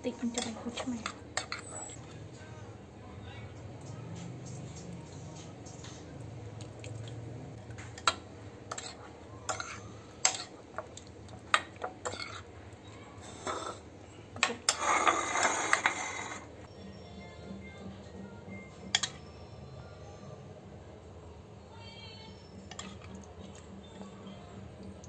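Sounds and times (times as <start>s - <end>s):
spoon stirring sauce in bowl: 5.6s - 12.5s.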